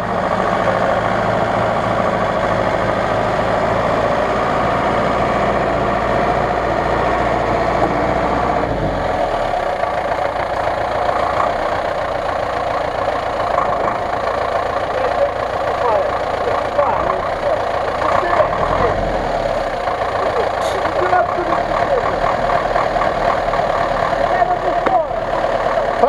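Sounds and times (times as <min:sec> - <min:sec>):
off-road vehicle engines running: 0:00.0 - 0:26.0.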